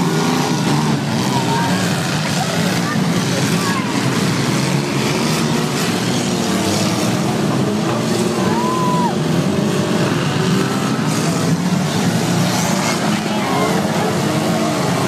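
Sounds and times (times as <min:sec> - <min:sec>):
car engines revving together: 0:00.0 - 0:15.0.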